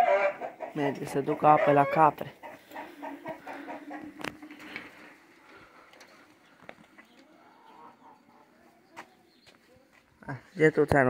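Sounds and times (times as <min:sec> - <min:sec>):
chickens clucking softly: 0:00.0 - 0:04.8, 0:06.1 - 0:10.0.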